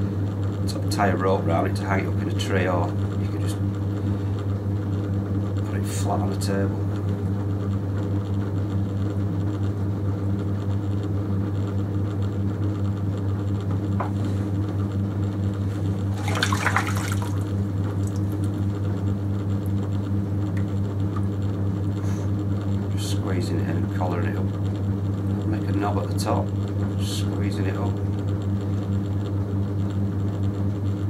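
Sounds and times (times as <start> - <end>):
potter's wheel motor hum: 0.0 - 31.0
wet clay spinning under hands: 15.5 - 22.0
wet rush of noise: 16.1 - 17.4.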